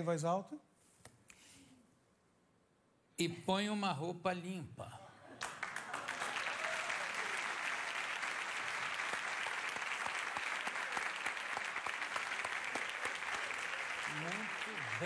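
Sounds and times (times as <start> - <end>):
audience applauding: 5.4 - 15.0.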